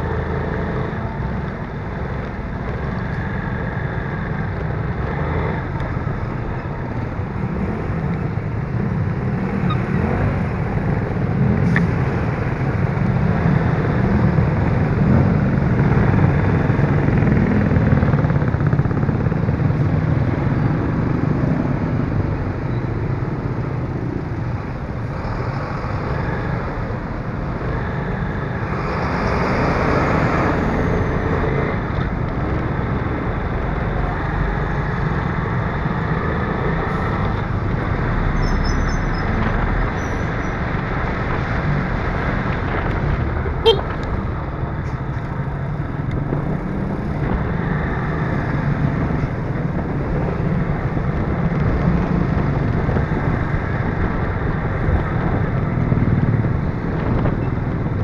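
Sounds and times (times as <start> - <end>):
traffic passing: 0.0 - 58.0
vehicle engine and road noise: 0.0 - 58.0.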